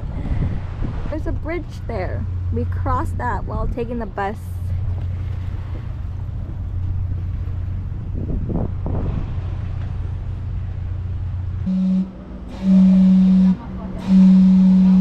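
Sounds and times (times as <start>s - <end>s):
wind rumbling on microphone: 0.0s - 14.1s
steam whistle: 11.7s - 15.0s.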